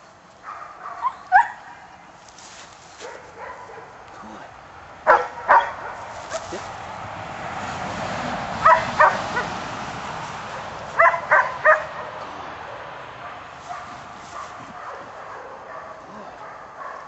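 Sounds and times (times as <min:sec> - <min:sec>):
puppy yipping: 0:00.9 - 0:01.6.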